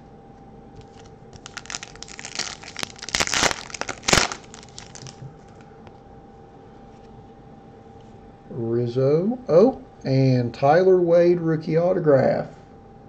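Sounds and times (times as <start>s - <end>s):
foil wrapper crinkling: 0.8s - 5.6s.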